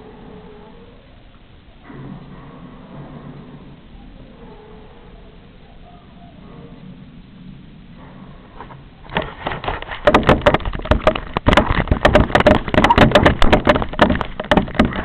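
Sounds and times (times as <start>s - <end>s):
knocking and scraping on microphone: 8.6s - 15.0s.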